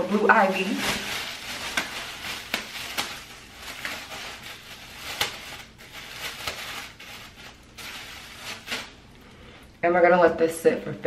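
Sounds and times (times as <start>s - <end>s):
plastic cap crinkling: 0.5s - 9.2s.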